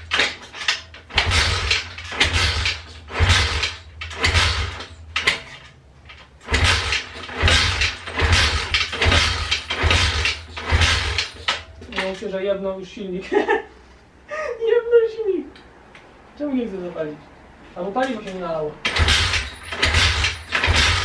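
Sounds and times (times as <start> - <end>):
motorbike engine being kicked over: 0.0 - 12.2, 18.8 - 21.0.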